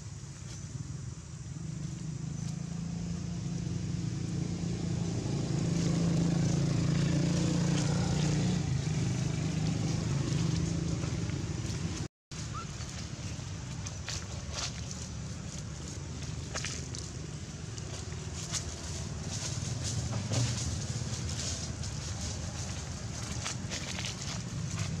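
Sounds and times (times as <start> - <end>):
vehicle engine humming: 0.0 - 25.0.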